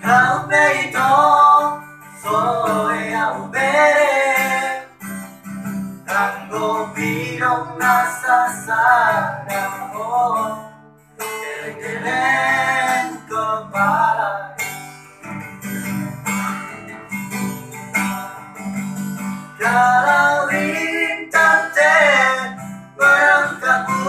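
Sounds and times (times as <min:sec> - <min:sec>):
man singing: 0:00.0 - 0:05.0, 0:06.1 - 0:14.7, 0:19.6 - 0:24.0
acoustic guitar strumming: 0:00.0 - 0:24.0.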